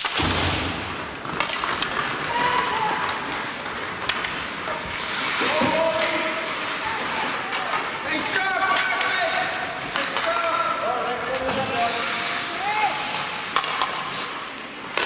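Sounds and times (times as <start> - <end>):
hockey sticks clacking: 0.0 - 15.0
skate blades scraping ice: 0.0 - 15.0
spectators shouting: 2.2 - 3.4.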